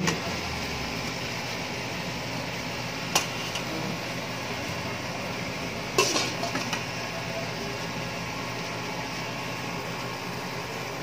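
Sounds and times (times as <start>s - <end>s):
glass lid clattering on metal: 6.0s - 6.8s.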